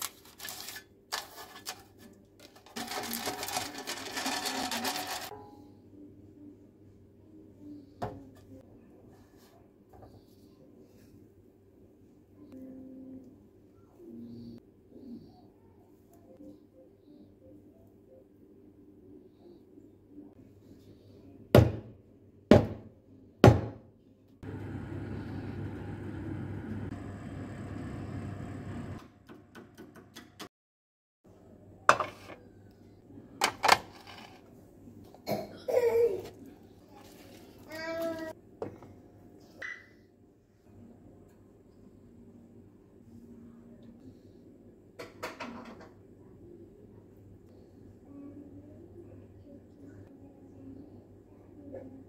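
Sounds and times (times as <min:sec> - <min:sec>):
paper rustling: 0:00.0 - 0:05.3
oven humming: 0:24.4 - 0:29.0.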